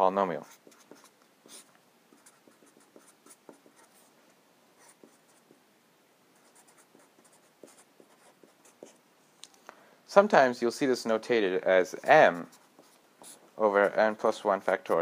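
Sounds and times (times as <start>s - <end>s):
felt-tip marker writing on paper: 0.5s - 4.0s.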